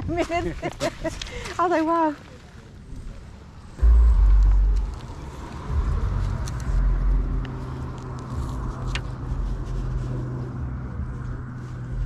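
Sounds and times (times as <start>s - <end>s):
engine hum: 3.7s - 12.0s
wind rumble on microphone: 3.8s - 12.0s.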